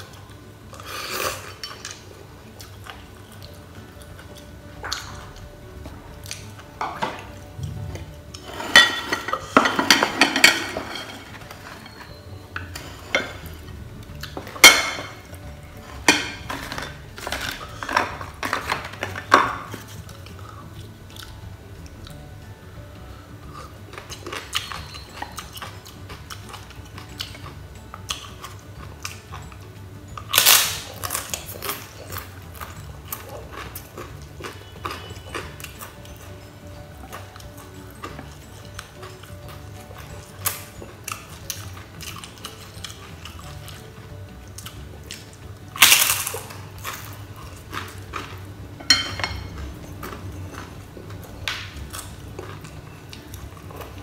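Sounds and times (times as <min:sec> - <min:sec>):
chopsticks and crockery clinking: 0:08.4 - 0:21.3, 0:23.6 - 0:54.0.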